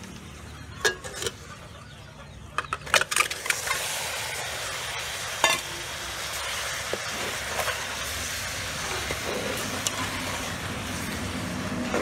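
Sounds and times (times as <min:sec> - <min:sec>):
food sizzling in a pot: 0:03.2 - 0:12.0.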